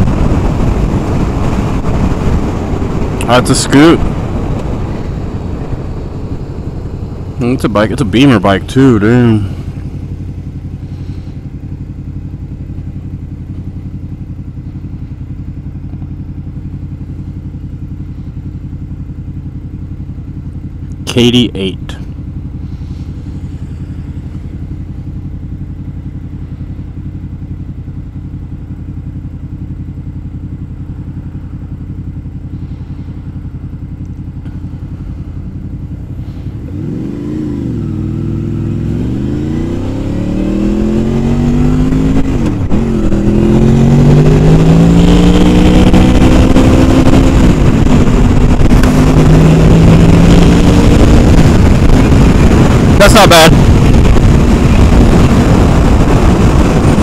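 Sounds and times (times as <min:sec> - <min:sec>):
wind rushing: 0:00.0 - 0:10.2, 0:36.6 - 0:57.0
motorcycle engine revving: 0:00.0 - 0:57.0.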